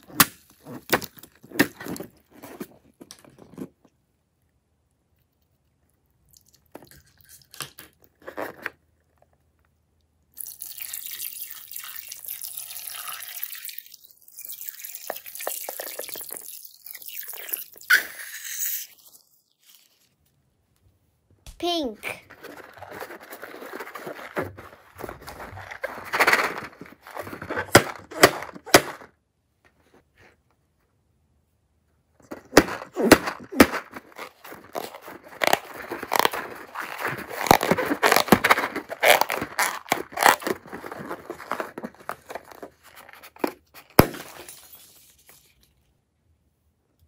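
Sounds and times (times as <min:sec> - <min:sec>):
balloon squishing in slime: 0:32.4 - 0:42.8.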